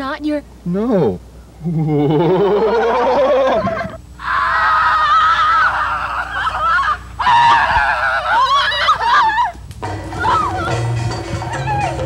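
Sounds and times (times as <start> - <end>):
people screaming in fright: 2.5 - 10.8, 11.4 - 12.0.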